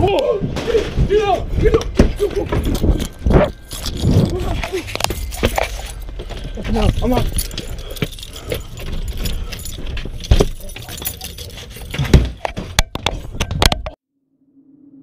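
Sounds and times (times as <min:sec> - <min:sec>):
keys jangling at a door lock: 0:02.2 - 0:13.6.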